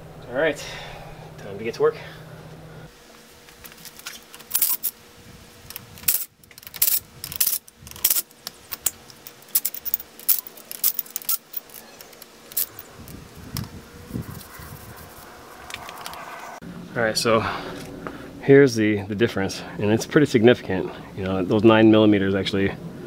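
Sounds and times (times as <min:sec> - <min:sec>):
metal tools clinking: 0:06.0 - 0:12.9.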